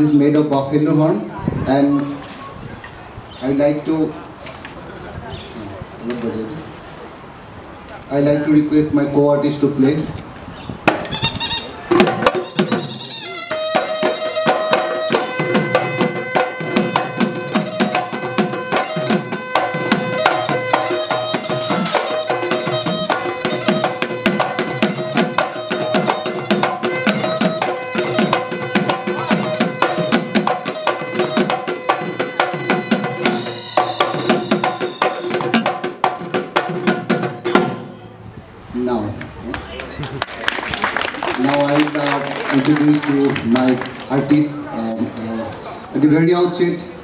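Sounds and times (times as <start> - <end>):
shrill horn pipe melody: 11.0 - 35.7
barrel drum beaten fast: 11.9 - 38.0.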